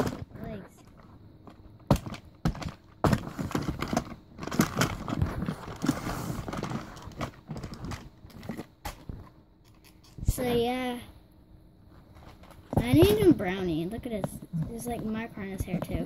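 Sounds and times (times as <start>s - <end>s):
rustling: 0.0s - 10.6s.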